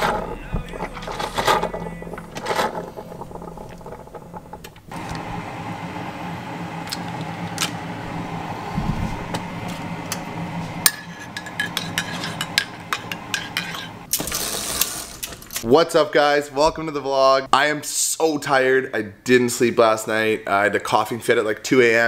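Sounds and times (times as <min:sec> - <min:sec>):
coffee maker humming: 0:00.0 - 0:15.3.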